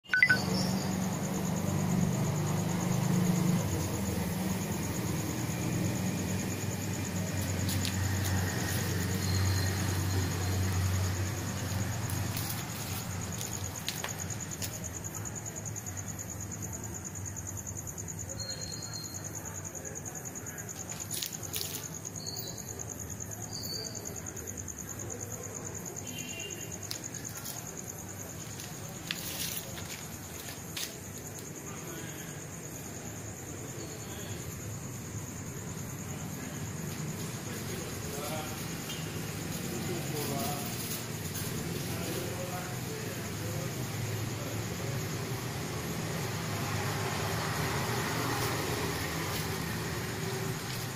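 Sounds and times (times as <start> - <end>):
night insects chirping: 0.0 - 50.9
insect trilling: 0.1 - 15.8, 17.9 - 19.4, 20.7 - 24.9.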